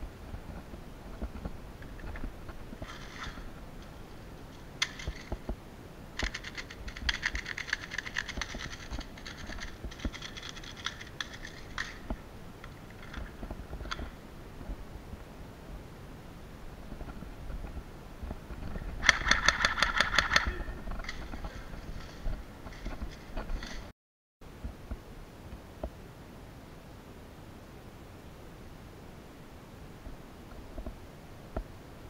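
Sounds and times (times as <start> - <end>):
handling noise: 0.0 - 15.9, 16.6 - 23.9
bbs loading into magazine: 6.2 - 13.3.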